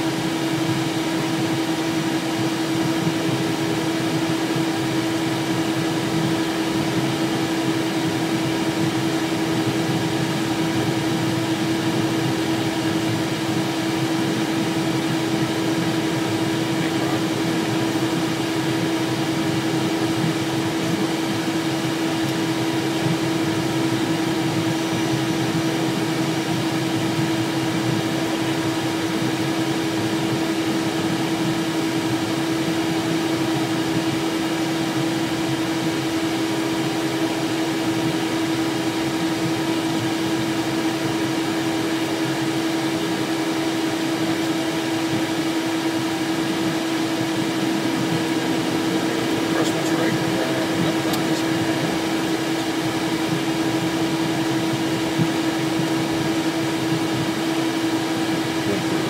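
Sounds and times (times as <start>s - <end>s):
jet engines droning: 0.0s - 59.0s
constant tone: 45.9s - 57.3s.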